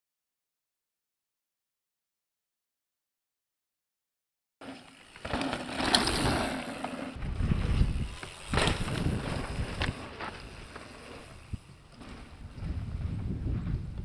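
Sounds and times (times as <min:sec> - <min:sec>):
tyres rolling over loose dirt: 0:04.6 - 0:13.9
bike rattling over bumps: 0:04.6 - 0:14.0
bike rushing past: 0:04.6 - 0:14.0.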